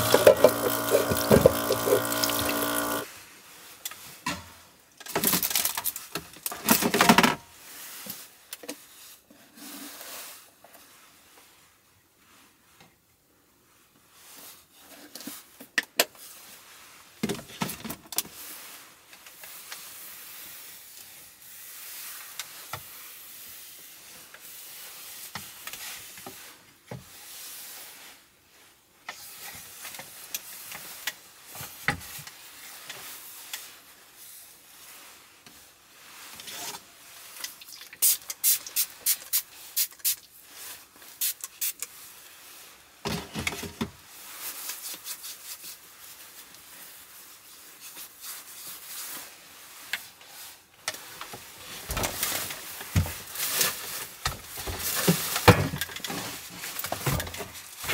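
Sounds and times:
spray bottle spritzing: 0.0s - 3.0s, 37.6s - 40.3s, 41.2s - 41.9s.

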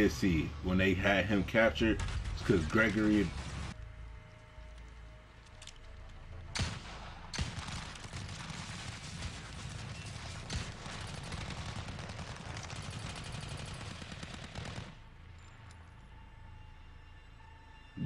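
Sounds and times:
automatic gunfire: 6.6s - 15.0s.

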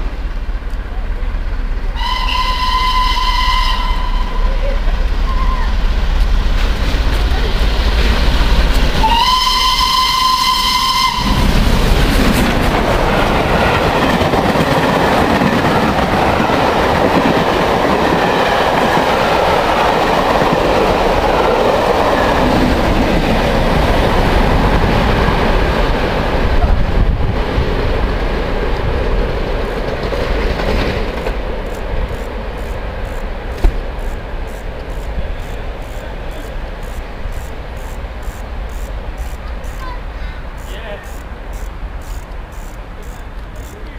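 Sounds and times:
steam train rumbling past: 0.0s - 43.9s
steam locomotive whistle: 1.9s - 5.8s, 9.0s - 11.6s.

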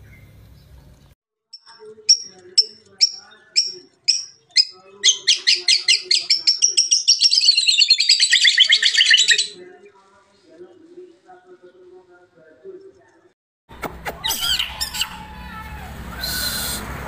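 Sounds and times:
songbird singing: 0.0s - 9.9s.

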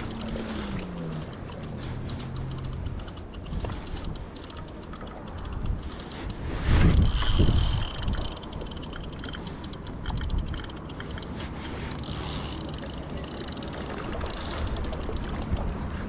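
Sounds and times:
fishing reel clicking rapidly: 0.0s - 15.6s.

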